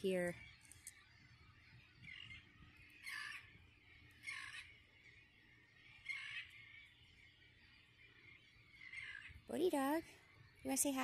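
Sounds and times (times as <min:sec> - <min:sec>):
distant bird calls: 0:00.0 - 0:11.0.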